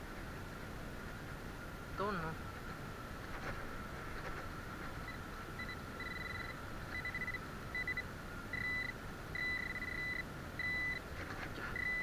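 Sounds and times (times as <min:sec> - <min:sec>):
faint steady high tone: 0:05.1 - 0:11.0, 0:11.6 - 0:12.0
metal detector beeping: 0:05.1 - 0:11.0, 0:11.8 - 0:12.0.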